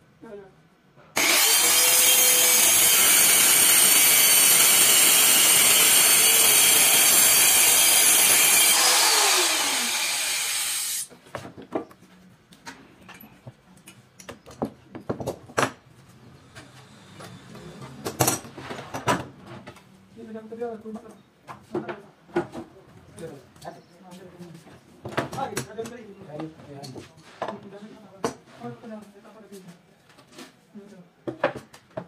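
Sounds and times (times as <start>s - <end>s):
circular saw cutting whine: 1.2s - 11.1s
saw motor winding down: 1.2s - 11.1s.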